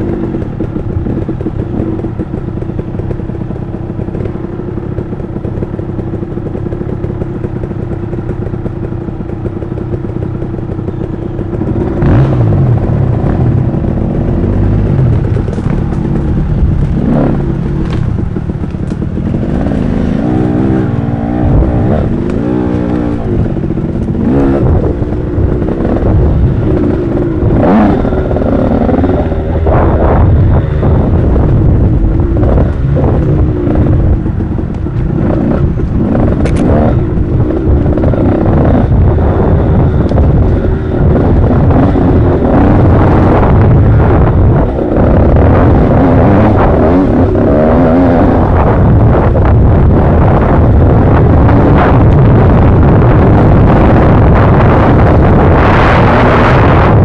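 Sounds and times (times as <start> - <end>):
dirt bike engine revving: 5.0 - 57.0
knocks and clatter: 14.5 - 25.2.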